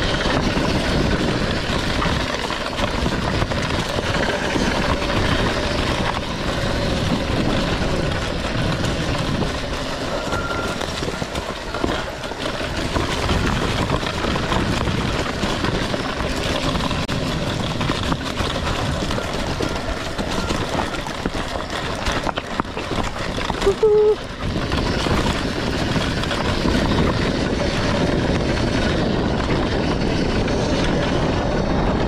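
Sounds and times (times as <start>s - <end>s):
bike rattling: 0.0s - 32.0s
tyres rumbling over rocks: 0.0s - 32.0s.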